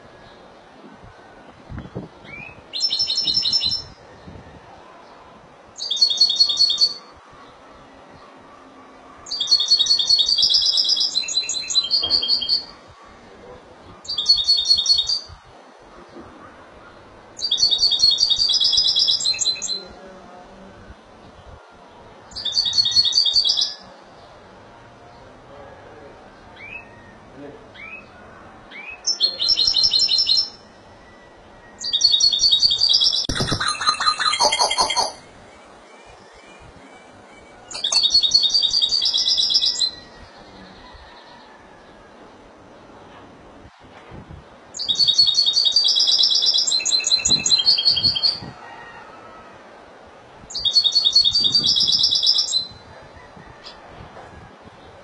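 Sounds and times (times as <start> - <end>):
goldfinch twittering song: 31.8 - 35.2.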